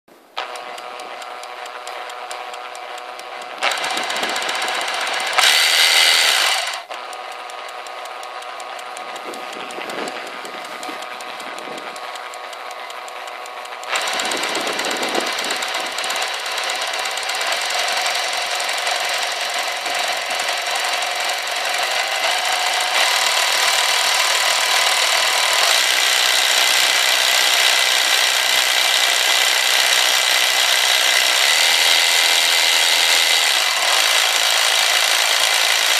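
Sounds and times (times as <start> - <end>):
electric jigsaw running: 0.4 - 35.9.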